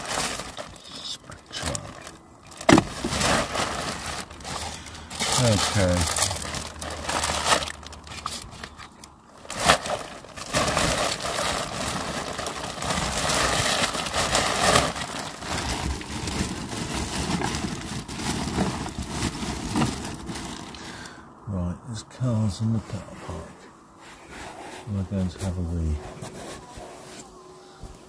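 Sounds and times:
rummaging through belongings: 0:00.0 - 0:20.8.

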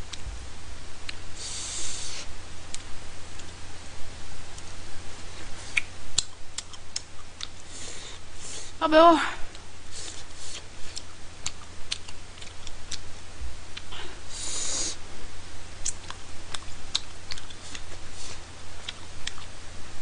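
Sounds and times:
low electrical hum: 0:00.0 - 0:20.0
short hiss: 0:01.4 - 0:02.3
person chewing: 0:05.6 - 0:07.7, 0:09.5 - 0:13.1, 0:15.8 - 0:19.5
wet mouth clicks and smacks: 0:05.7 - 0:07.6.

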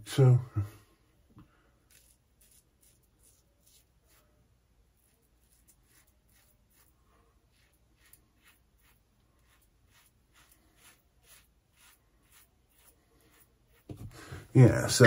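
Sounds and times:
razor scraping stubble: 0:01.9 - 0:04.2, 0:05.0 - 0:14.1.

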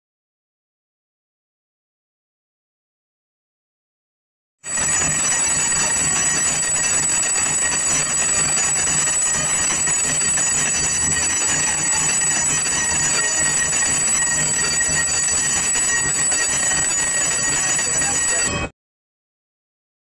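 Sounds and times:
temple bells ringing: 0:04.7 - 0:18.7.

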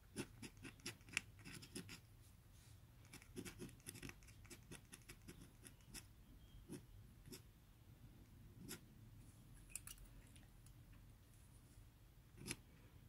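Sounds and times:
pen nib scratching on paper: 0:00.0 - 0:02.1, 0:03.0 - 0:07.5, 0:08.6 - 0:08.8, 0:12.4 - 0:12.6.

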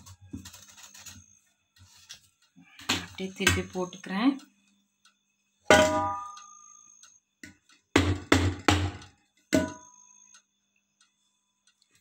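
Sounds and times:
knocks on a metal pot: 0:05.7 - 0:06.4, 0:08.0 - 0:09.9.

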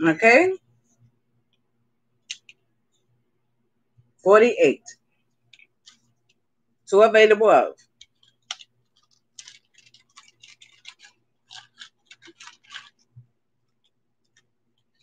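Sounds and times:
faint electrical hum: 0:00.0 - 0:15.0
small objects clicking and rattling: 0:08.0 - 0:15.0.

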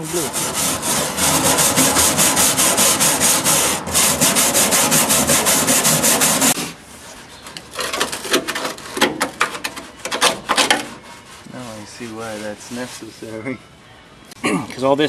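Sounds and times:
wire brush scrubbing steel: 0:00.0 - 0:06.7, 0:10.8 - 0:13.4.

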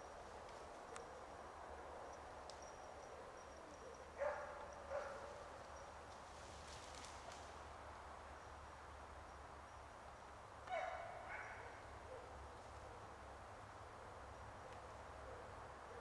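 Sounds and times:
dog barking: 0:04.2 - 0:05.3, 0:10.7 - 0:12.3.

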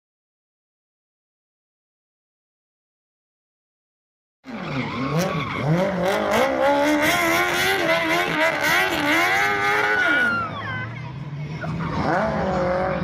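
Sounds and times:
engine revving high: 0:04.5 - 0:13.0.

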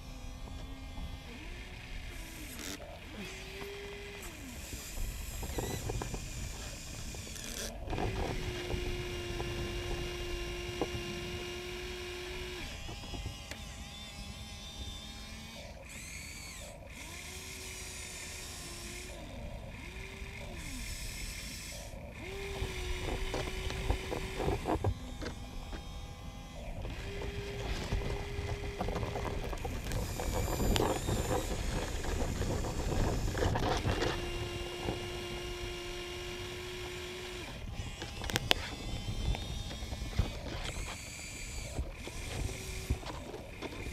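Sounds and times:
electric motors whining: 0:00.0 - 0:43.9
buckets scraping and knocking dirt: 0:26.7 - 0:35.2.

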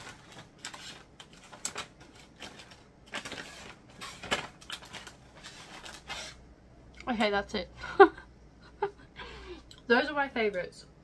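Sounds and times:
plastic packets rustling: 0:00.0 - 0:06.4.

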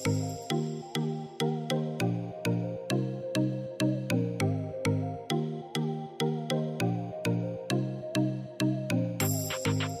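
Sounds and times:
background music with struck notes: 0:00.0 - 0:10.0.

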